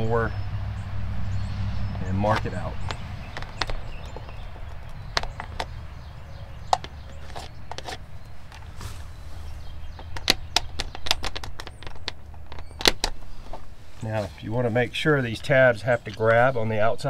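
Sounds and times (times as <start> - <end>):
pencil scraping on plastic box: 7.0 - 8.7.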